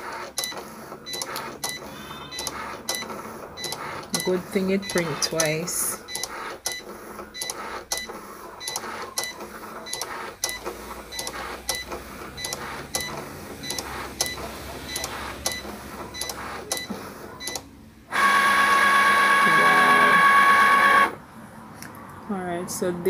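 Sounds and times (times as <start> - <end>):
cutting machine clicks and chirps: 0.4 - 17.7.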